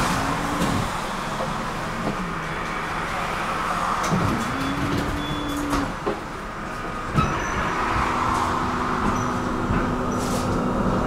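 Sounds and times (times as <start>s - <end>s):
tram wheels rolling on rails: 0.0s - 11.0s.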